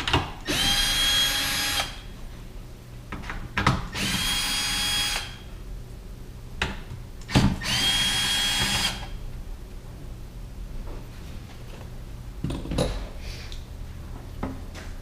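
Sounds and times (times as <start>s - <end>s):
drill motor whine: 0.5s - 2.0s, 4.0s - 5.4s, 7.6s - 9.1s.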